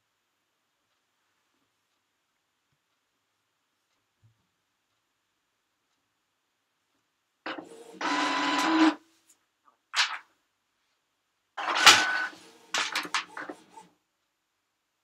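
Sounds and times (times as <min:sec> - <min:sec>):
printer mechanism whirring: 0:07.5 - 0:09.0, 0:11.6 - 0:13.9
printer quick clicks and ticks: 0:07.5 - 0:09.0, 0:11.6 - 0:13.9.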